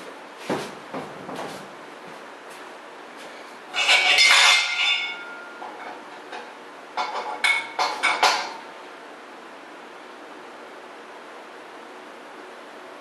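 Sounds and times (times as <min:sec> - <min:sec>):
metal parts clanking: 0:03.7 - 0:08.6.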